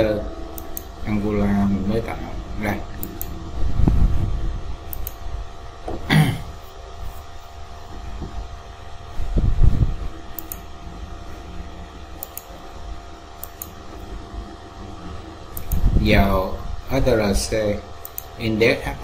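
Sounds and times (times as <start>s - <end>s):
fan hum: 0.0s - 19.0s
computer mouse clicks: 0.6s - 0.9s, 4.9s - 5.2s, 10.3s - 10.7s, 12.2s - 12.5s, 13.4s - 13.8s, 15.5s - 15.9s, 18.0s - 18.3s.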